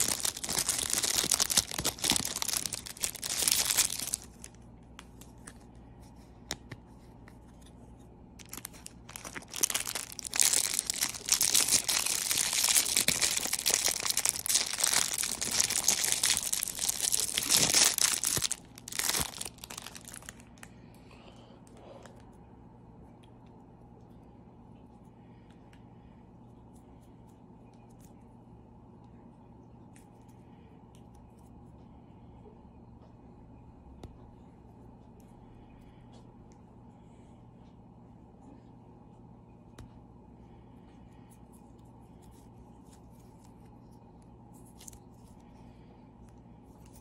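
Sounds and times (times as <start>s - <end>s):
plastic wrapper crinkling: 0.0s - 5.7s, 8.4s - 20.7s.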